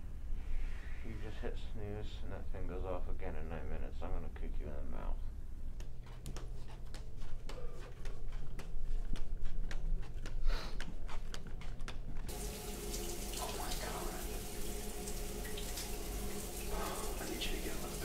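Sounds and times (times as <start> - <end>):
shower water spraying: 12.3 - 18.0.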